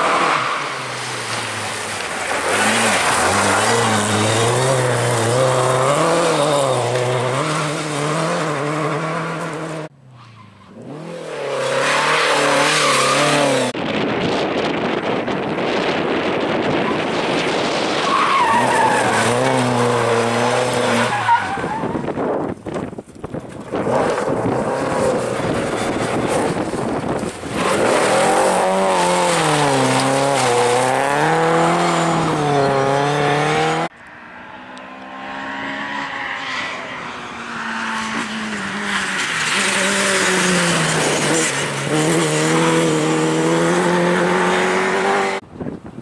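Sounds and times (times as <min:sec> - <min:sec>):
rally car engines revving hard: 0:00.0 - 0:09.9, 0:10.7 - 0:13.8, 0:15.6 - 0:22.9, 0:23.5 - 0:45.4.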